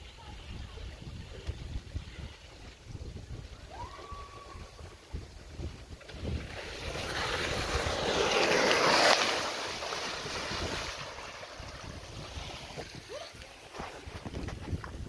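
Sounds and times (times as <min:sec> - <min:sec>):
wind buffeting microphone: 0:00.0 - 0:08.6, 0:10.1 - 0:15.0
water rushing down slide: 0:03.5 - 0:14.4.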